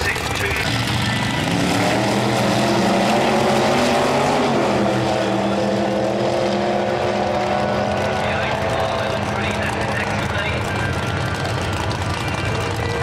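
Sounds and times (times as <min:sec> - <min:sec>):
race car engines accelerating: 0:00.0 - 0:13.0.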